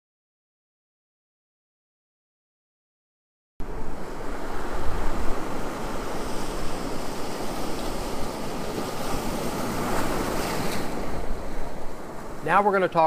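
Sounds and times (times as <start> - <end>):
ocean waves breaking on beach: 3.6 - 13.0.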